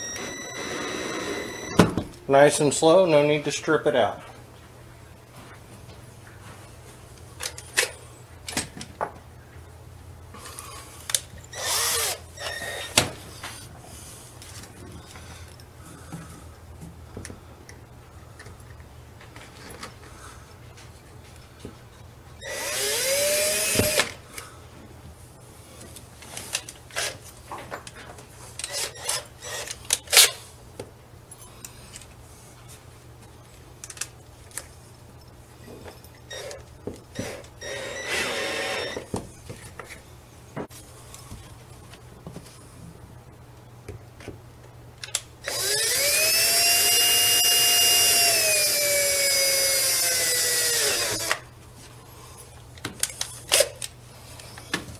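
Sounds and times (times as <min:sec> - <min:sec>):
cordless drill motor whine: 0:00.0 - 0:01.9, 0:11.5 - 0:13.0, 0:22.4 - 0:24.1, 0:37.2 - 0:39.1, 0:45.4 - 0:51.4.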